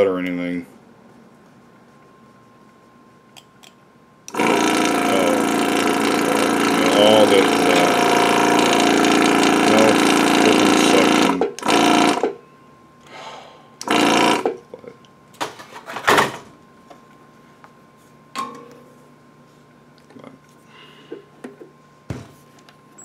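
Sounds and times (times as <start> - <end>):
vacuum pump buzzing: 4.2 - 12.4, 13.8 - 14.6.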